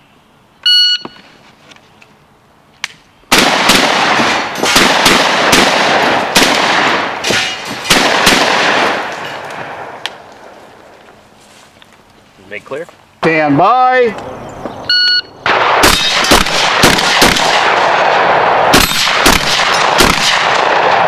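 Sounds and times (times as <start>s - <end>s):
shotgun shots echoing: 3.3s - 10.0s, 15.4s - 21.0s.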